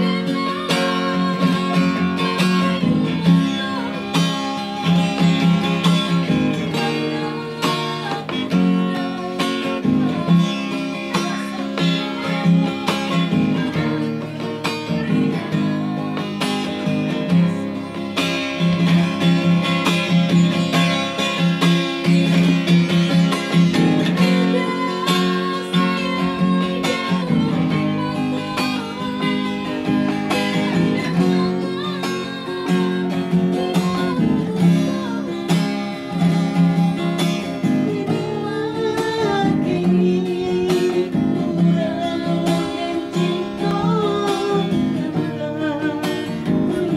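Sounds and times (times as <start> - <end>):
acoustic guitar strumming: 0.0 - 46.9
woman singing: 0.0 - 46.9.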